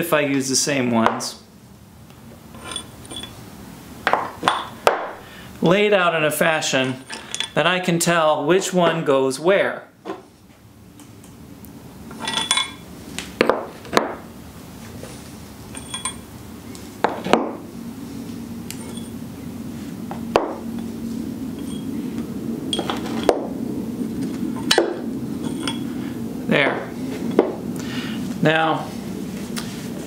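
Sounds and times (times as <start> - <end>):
low steady hum: 0.0 - 30.0
metal bolts clinking: 2.5 - 3.4, 6.7 - 7.6, 12.1 - 12.8, 15.7 - 16.3, 18.7 - 19.2, 21.6 - 21.9, 22.7 - 23.4, 24.6 - 25.9.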